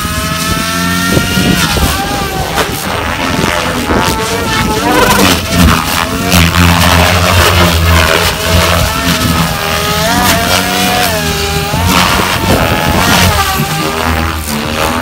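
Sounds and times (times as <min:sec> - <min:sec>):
electric motor whine: 0:00.0 - 0:15.0
low rotor buzz: 0:00.0 - 0:15.0.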